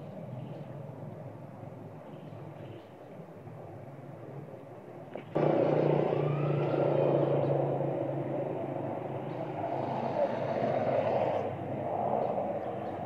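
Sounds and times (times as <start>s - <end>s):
vehicle engine running: 5.3s - 10.3s.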